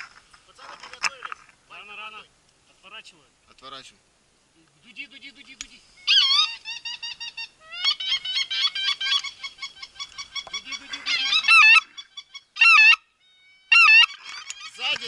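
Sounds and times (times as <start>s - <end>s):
goose call honks and clucks: 6.0s - 13.1s, 13.7s - 14.9s.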